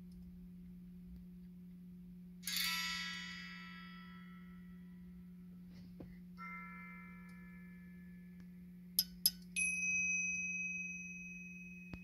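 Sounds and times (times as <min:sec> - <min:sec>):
faint low hum: 0:00.0 - 0:12.0
high chime ringing: 0:02.4 - 0:05.4, 0:06.4 - 0:12.0.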